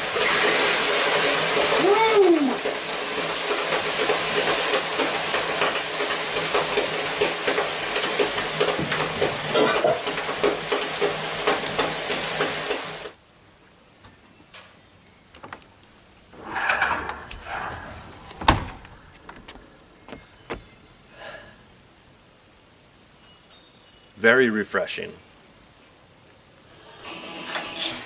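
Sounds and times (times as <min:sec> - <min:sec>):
water sizzling on hot stones: 0:00.0 - 0:13.2, 0:26.0 - 0:28.0.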